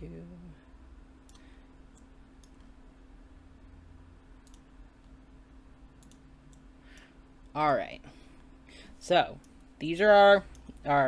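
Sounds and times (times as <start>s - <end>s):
low steady hum: 0.0s - 11.0s
computer mouse clicks: 1.2s - 2.7s, 4.4s - 5.2s, 6.0s - 7.1s.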